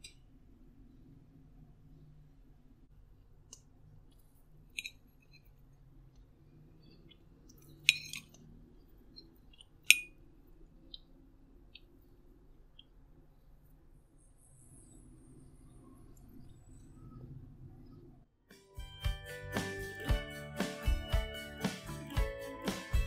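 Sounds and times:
faint low hum: 0:00.0 - 0:18.4.

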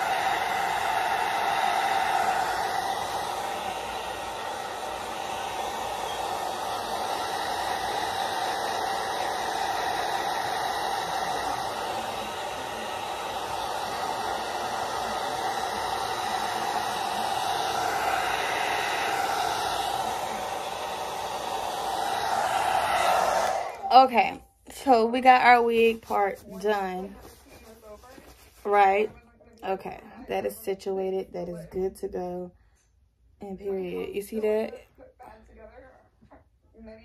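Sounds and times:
hair dryer blowing: 0:00.0 - 0:27.1, 0:33.6 - 0:34.8.

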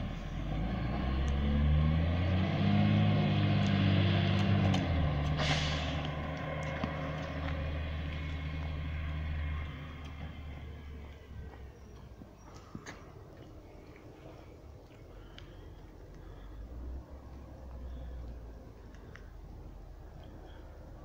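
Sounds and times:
short hiss: 0:05.4 - 0:06.0.

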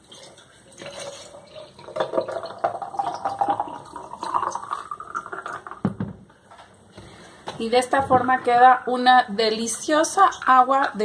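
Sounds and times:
liquid pouring into a glass jar: 0:00.0 - 0:05.8.

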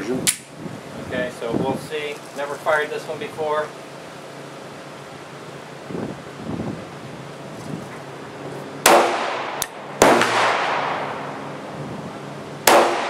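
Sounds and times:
pistol shots echoing: 0:08.8 - 0:11.2, 0:12.7 - 0:13.0.

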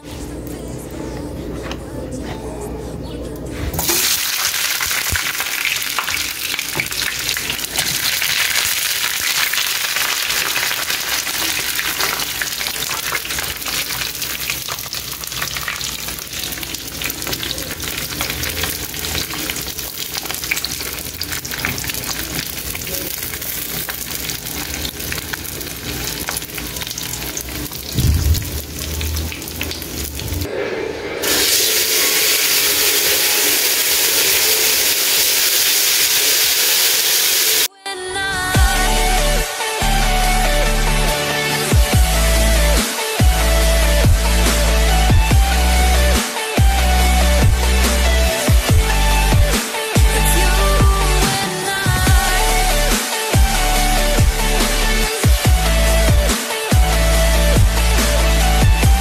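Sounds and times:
meat sizzling in a pan: 0:03.8 - 0:30.4, 0:31.2 - 0:37.7
potatoes sizzling in hot oil: 0:03.8 - 0:30.4, 0:31.2 - 0:37.7
low thump: 0:27.9 - 0:28.6.

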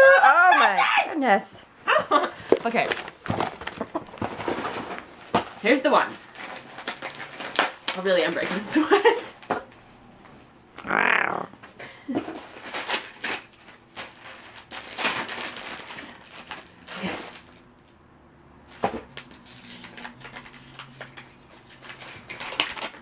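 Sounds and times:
wrapping paper rustling: 0:02.7 - 0:09.5, 0:12.3 - 0:17.9, 0:19.1 - 0:23.0.

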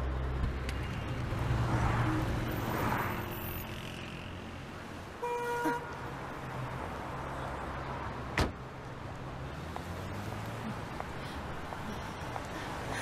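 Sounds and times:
car horn beep: 0:05.2 - 0:05.9.

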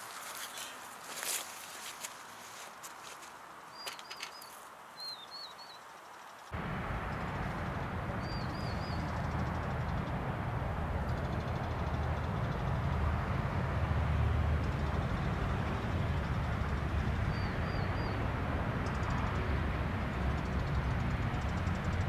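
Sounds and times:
low outdoor rumble: 0:06.6 - 0:22.0.

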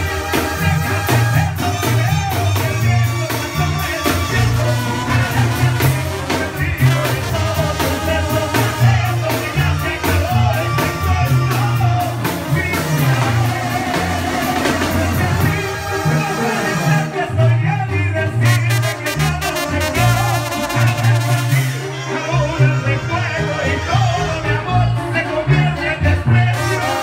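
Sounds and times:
brass band playing: 0:00.0 - 0:27.0
man singing: 0:00.0 - 0:27.0.

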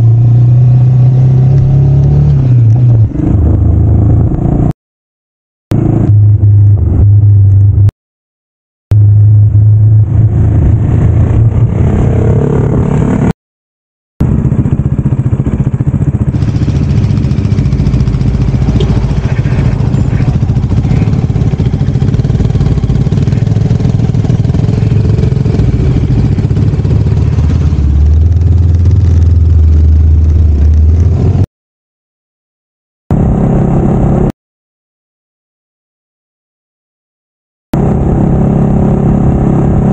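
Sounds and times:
motorcycle engine running: 0:05.7 - 0:07.9, 0:08.9 - 0:13.3, 0:14.2 - 0:31.4, 0:37.8 - 0:39.9.

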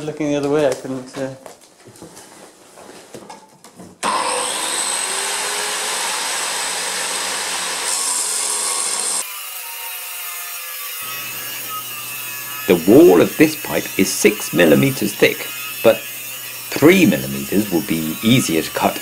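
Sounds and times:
angle grinder grinding steel pipe: 0:04.0 - 0:19.0.

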